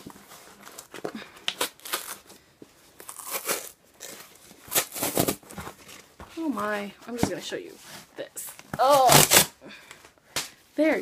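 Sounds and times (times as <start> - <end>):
cardboard box being torn open: 3.0 - 5.5, 8.8 - 9.5.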